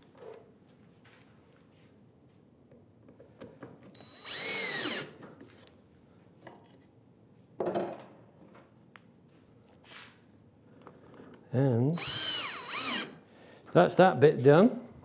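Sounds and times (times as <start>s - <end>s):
drill motor whining: 4.0s - 5.2s, 12.0s - 13.2s.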